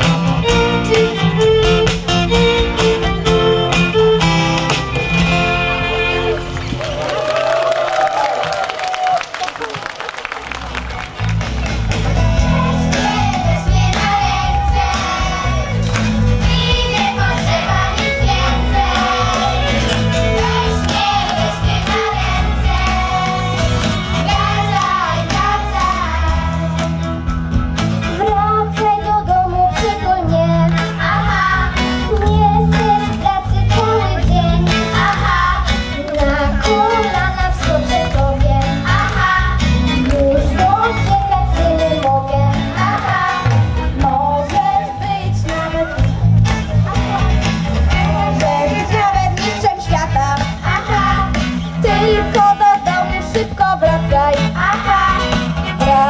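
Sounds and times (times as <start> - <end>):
instrumental band accompaniment: 0.0 - 7.4, 9.5 - 56.0
children's choir singing: 12.5 - 26.9, 29.7 - 46.0.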